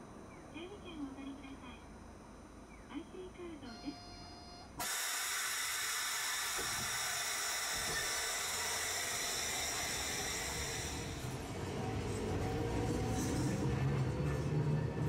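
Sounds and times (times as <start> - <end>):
streetcar air hiss: 4.8 - 12.3.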